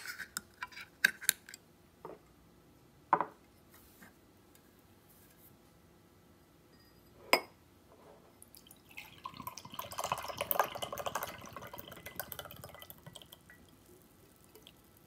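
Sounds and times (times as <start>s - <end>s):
liquid pouring into a glass: 8.4s - 15.0s.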